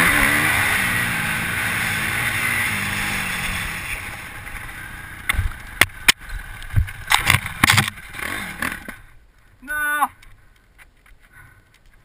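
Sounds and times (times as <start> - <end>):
dirt bike engine at low revs: 0.0 - 9.2.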